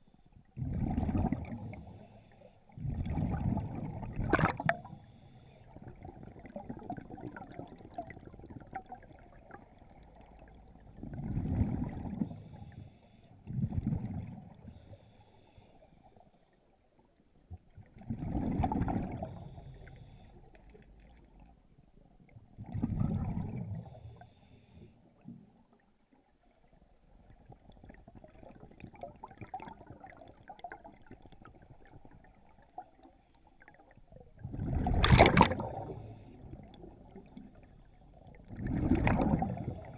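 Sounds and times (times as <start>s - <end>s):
air bubbles gurgling underwater: 0.6s - 1.9s, 2.8s - 5.0s, 5.8s - 12.4s, 18.0s - 19.6s, 22.6s - 24.0s, 27.4s - 33.0s, 34.3s - 37.6s, 38.2s - 39.9s.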